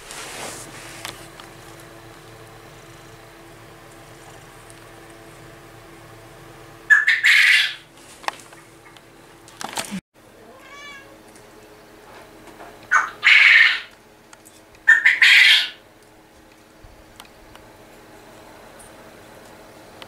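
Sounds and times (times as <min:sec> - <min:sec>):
quail calling harshly: 0:06.9 - 0:07.9, 0:12.9 - 0:13.9, 0:14.9 - 0:15.8.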